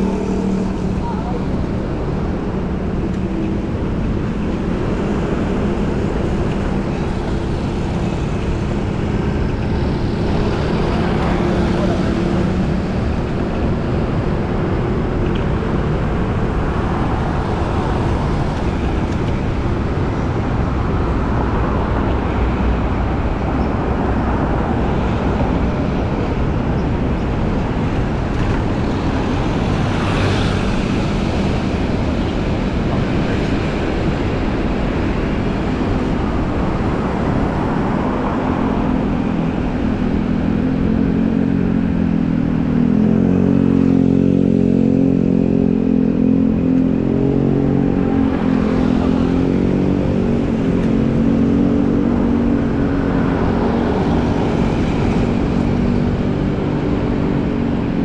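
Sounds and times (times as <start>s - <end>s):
road traffic rush: 0.0s - 58.0s
vehicle engine humming close by: 0.0s - 58.0s.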